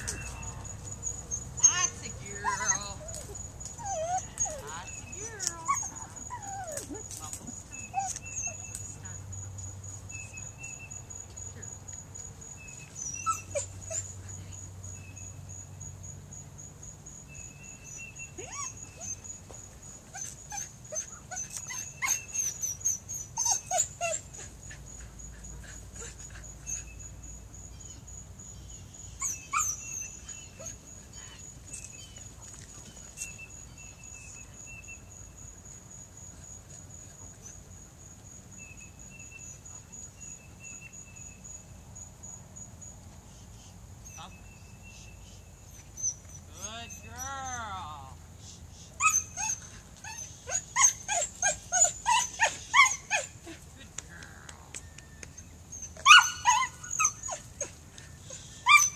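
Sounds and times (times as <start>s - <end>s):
dog whining and yipping: 0.0s - 9.0s, 12.6s - 14.1s, 17.8s - 19.4s, 20.1s - 27.1s, 29.1s - 35.0s, 44.0s - 44.3s, 45.2s - 47.8s, 49.0s - 53.6s, 54.7s - 58.9s
pulsing insect trill: 0.0s - 47.6s.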